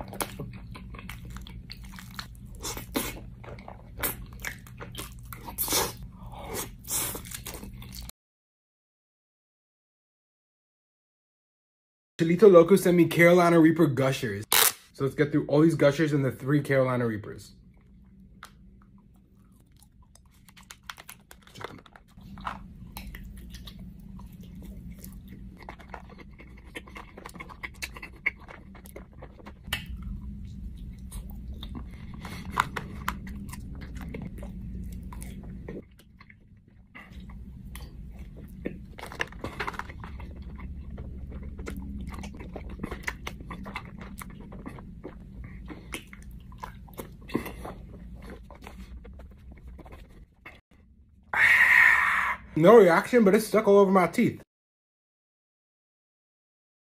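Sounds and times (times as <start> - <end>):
wet chewing of gummies: 0.0 - 8.1, 17.6 - 50.6.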